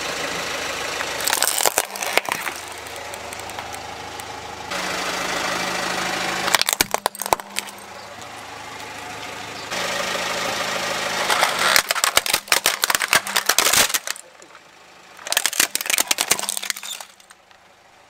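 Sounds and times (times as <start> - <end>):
car engine idling: 0.0 - 18.0
plastic toy cracking and snapping: 1.2 - 3.8, 6.5 - 7.8, 11.3 - 14.3, 15.2 - 17.4.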